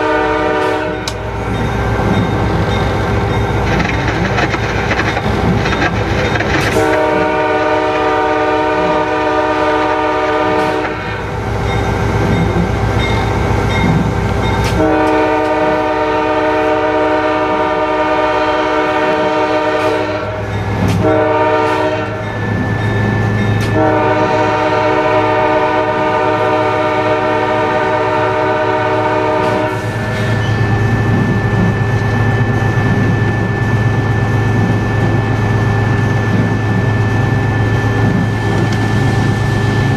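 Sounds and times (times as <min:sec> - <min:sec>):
locomotive air horn blasts: 0:00.0 - 0:01.3, 0:06.7 - 0:11.3, 0:14.7 - 0:22.3, 0:23.7 - 0:30.4.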